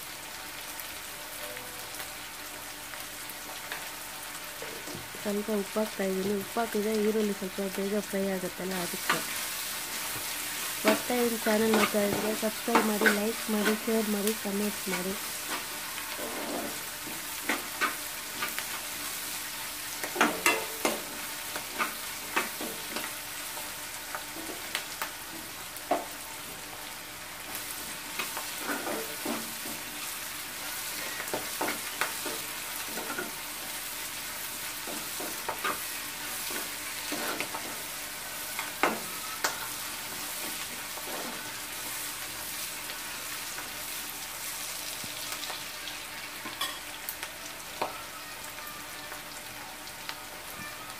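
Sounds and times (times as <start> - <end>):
onions sizzling in oil: 0.0 - 50.9
spatula scraping and tapping pan: 11.7 - 13.9, 36.4 - 37.8.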